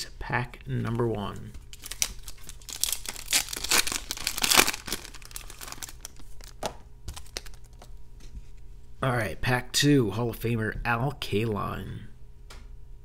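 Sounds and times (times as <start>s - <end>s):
cards rustling and clicking: 1.6s - 8.0s
wrapper tearing and crinkling: 1.6s - 8.0s.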